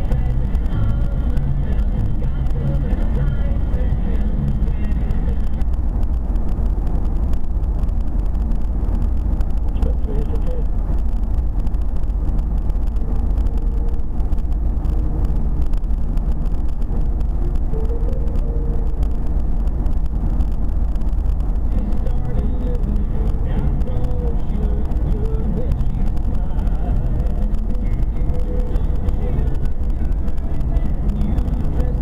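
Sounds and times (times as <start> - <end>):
car road and engine rumble: 0.0 - 32.0.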